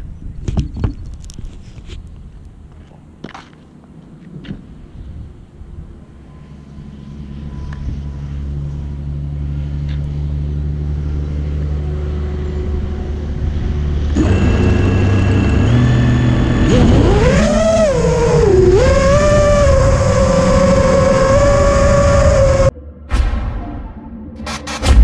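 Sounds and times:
quadcopter motors whining: 14.1s - 22.7s.

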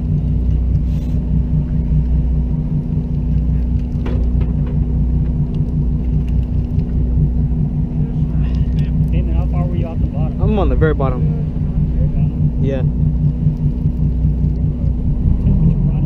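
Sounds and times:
boat engine running: 0.0s - 16.0s.

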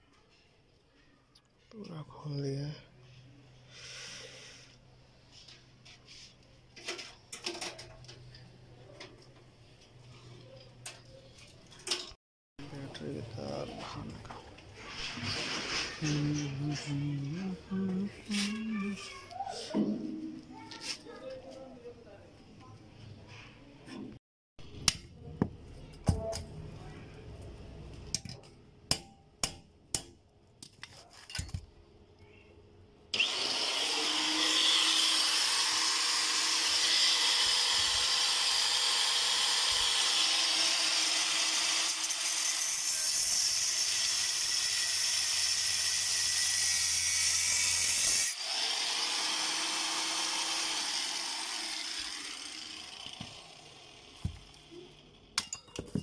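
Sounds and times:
electric power tool on metal: 33.1s - 54.7s.

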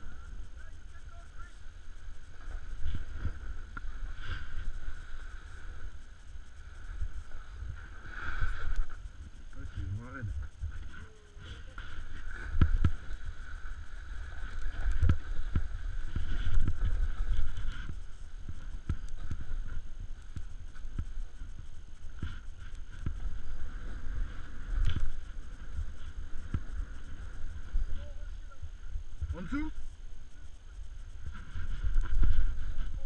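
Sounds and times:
snowboard and wind rumbling: 11.8s - 29.3s, 30.4s - 33.0s.

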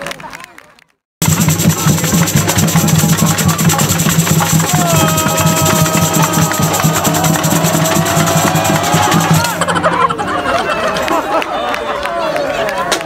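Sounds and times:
samba drum band playing: 1.2s - 9.7s.

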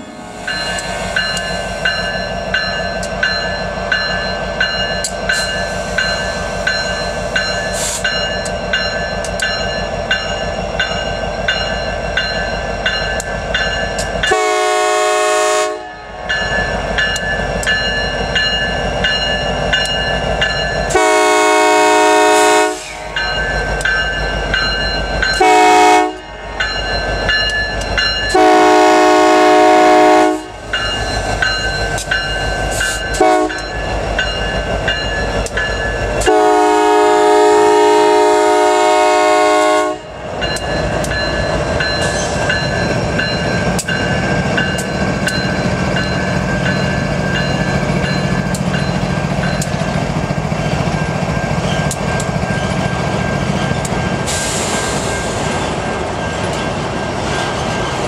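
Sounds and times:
freight train rumbling: 0.0s - 58.0s
train air horn blasts: 14.3s - 16.2s, 20.9s - 23.1s, 25.4s - 26.4s, 28.3s - 30.6s, 33.2s - 33.6s, 36.2s - 40.2s.

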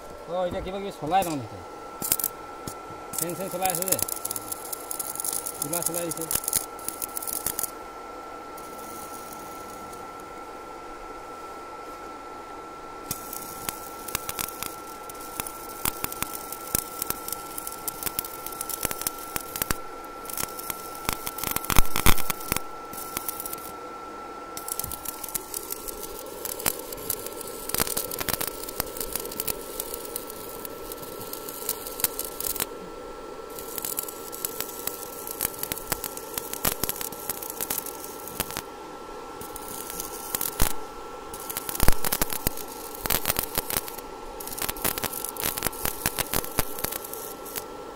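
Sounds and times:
welding arc crackling: 0.0s - 12.2s, 12.8s - 47.9s.

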